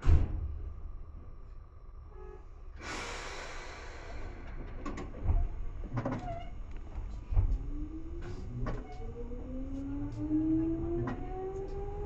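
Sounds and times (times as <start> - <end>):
train running rumble: 0.0 - 12.0
motor whine rising in pitch: 9.0 - 12.0.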